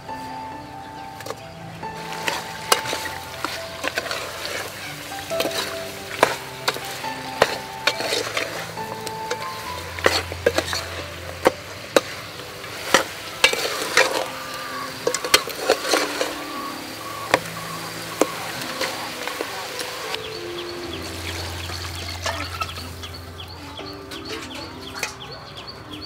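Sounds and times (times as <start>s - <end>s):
metal ladle scraping pot: 1.2s - 20.2s
meat sizzling in oil: 1.9s - 20.4s.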